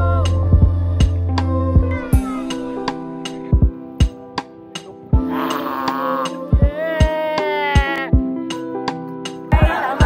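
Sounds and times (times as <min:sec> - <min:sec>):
held bass: 0:00.0 - 0:03.7
music with steady beat: 0:00.0 - 0:10.0.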